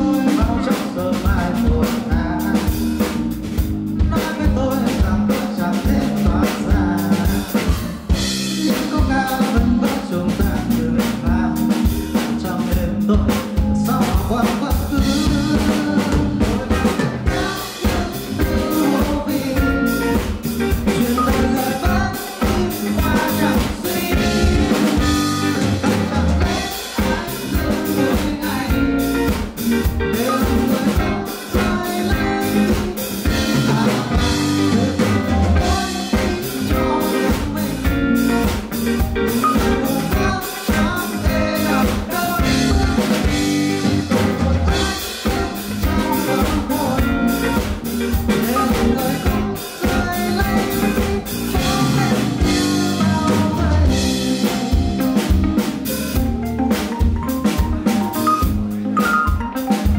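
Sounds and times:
man singing into microphone: 0.0s - 3.2s, 4.0s - 55.7s
live pop band playing: 0.0s - 59.9s.

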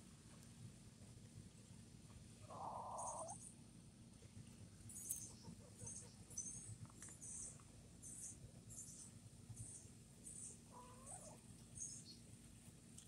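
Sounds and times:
hen clucking: 2.4s - 3.4s, 10.7s - 11.4s
small birds chirping: 2.4s - 3.6s, 4.9s - 12.3s.

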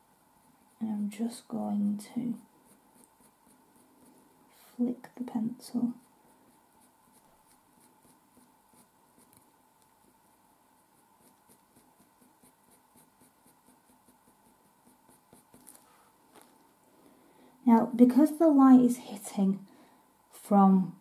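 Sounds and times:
pencil scratching on paper: 0.3s - 15.9s.

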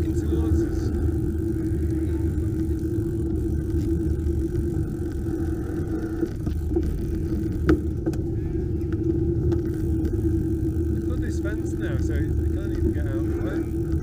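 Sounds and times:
bicycle rolling rumble: 0.0s - 14.0s.

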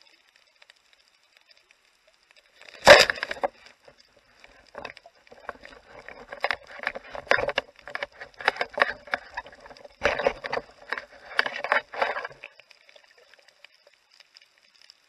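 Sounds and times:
rushes of water: 2.6s - 14.1s
underwater knocking and clicks: 2.7s - 13.4s.

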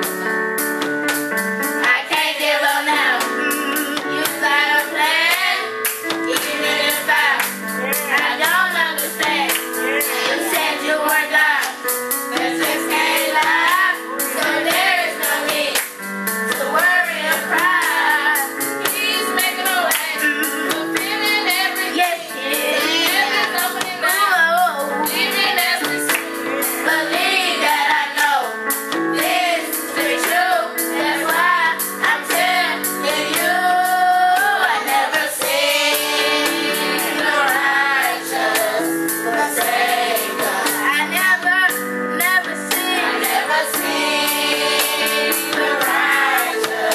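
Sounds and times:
steady percussive beat: 0.0s - 41.3s, 42.7s - 46.9s
held instrumental chords: 0.0s - 46.9s
youth choir singing gospel: 0.0s - 46.9s
woman singing: 16.6s - 26.1s, 40.8s - 43.9s.

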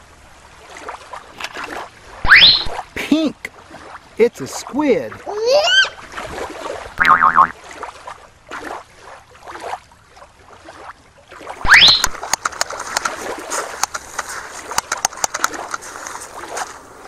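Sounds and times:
water splashing and sloshing: 0.0s - 17.0s
sharp clicks: 11.8s - 13.2s, 13.8s - 15.8s.

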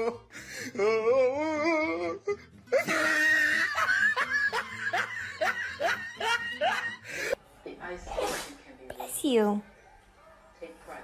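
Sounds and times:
person laughing hard: 2.7s - 7.1s.

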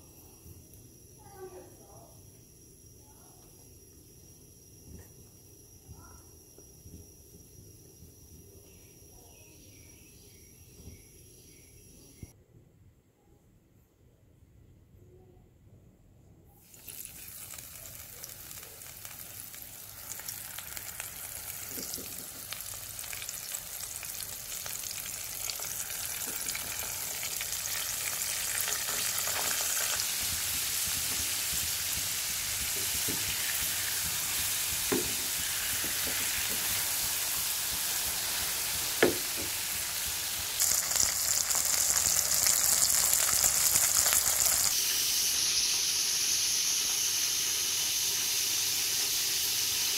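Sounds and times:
fish deep-frying in oil: 16.6s - 49.9s.

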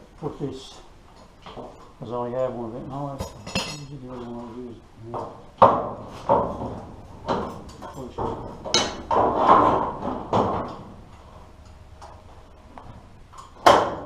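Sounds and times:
sharp metallic clanks: 3.2s - 4.0s.

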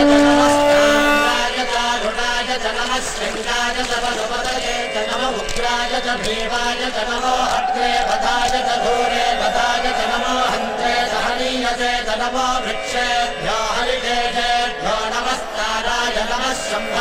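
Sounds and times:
group of voices chanting: 6.1s - 15.2s.

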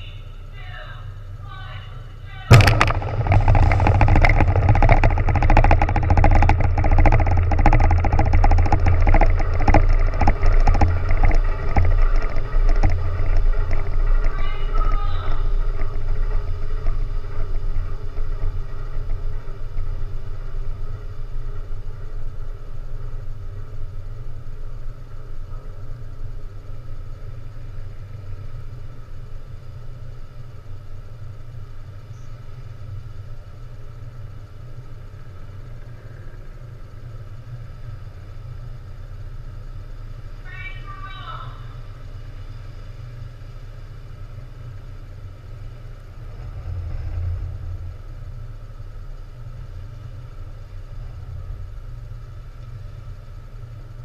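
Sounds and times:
steady low drone: 0.0s - 54.0s
crackling rumble of explosion: 2.5s - 54.0s.

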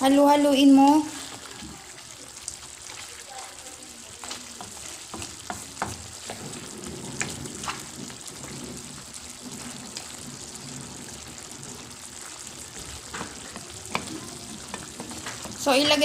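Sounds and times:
chicken sizzling in a wok: 0.0s - 16.0s
spatula knocking and scraping pan: 4.2s - 16.0s.

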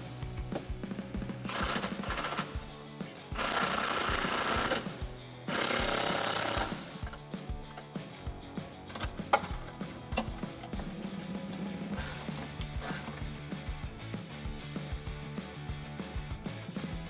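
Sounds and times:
background music: 0.0s - 17.0s
impact wrench bursts: 1.4s - 2.7s, 3.3s - 7.9s, 8.8s - 13.4s.

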